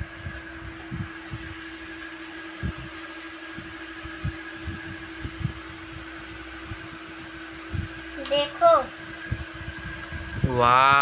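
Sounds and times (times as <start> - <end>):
fan humming: 0.0 - 11.0.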